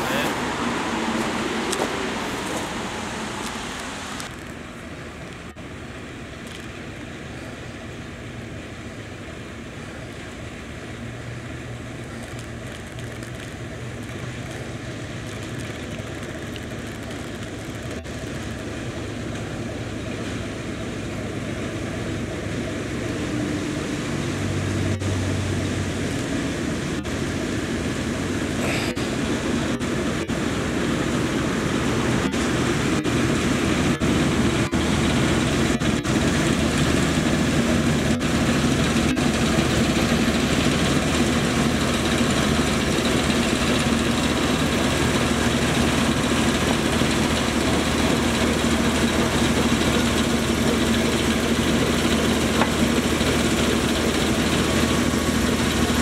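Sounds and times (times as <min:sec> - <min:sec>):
diesel locomotive engine hum: 0:00.0 - 0:56.0.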